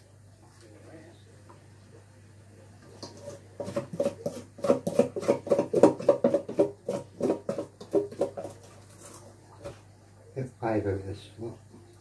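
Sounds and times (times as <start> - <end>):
spoon scraping steel bowl: 3.0 - 9.3.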